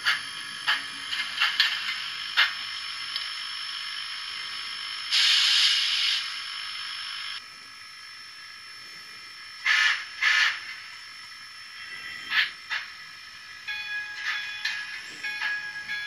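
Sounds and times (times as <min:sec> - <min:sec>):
model steam hiss: 0:00.0 - 0:07.4, 0:08.4 - 0:13.5
burst of steam: 0:05.1 - 0:06.3.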